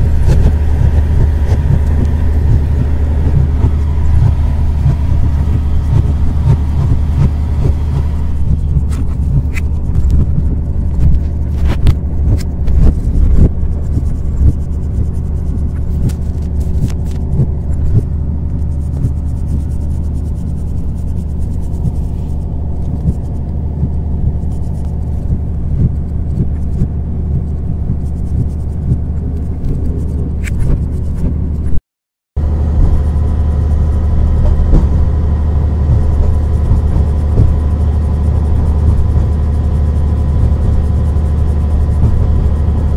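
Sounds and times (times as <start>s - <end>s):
train rumbling on rails: 0.0s - 20.3s
sharp clicks and knocks: 0.0s - 31.8s.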